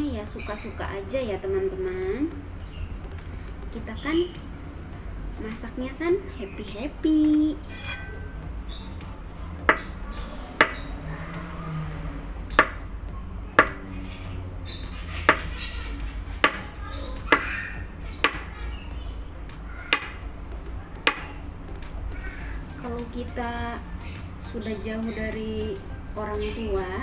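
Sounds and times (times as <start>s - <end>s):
knife striking cutting board: 12.6s - 12.8s, 13.6s - 13.8s, 15.3s - 15.6s, 21.0s - 21.2s.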